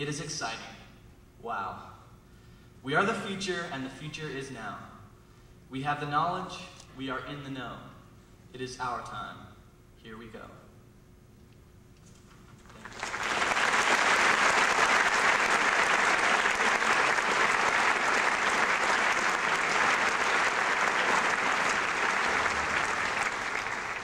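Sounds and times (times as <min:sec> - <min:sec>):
audience applauding: 0:12.7 - 0:24.0.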